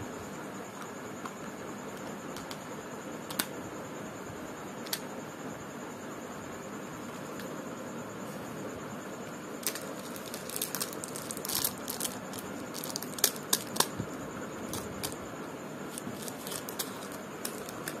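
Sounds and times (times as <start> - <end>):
steady background hiss: 0.0 - 18.0
plastic wrappers crinkling: 9.6 - 14.0, 14.7 - 15.2, 15.9 - 18.0.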